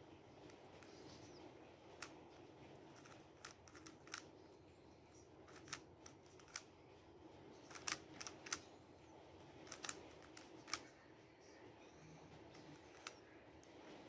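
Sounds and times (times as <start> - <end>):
low room hum: 0.0 - 14.0
puzzle cube clicks: 3.0 - 4.3, 7.7 - 8.6, 9.7 - 10.8.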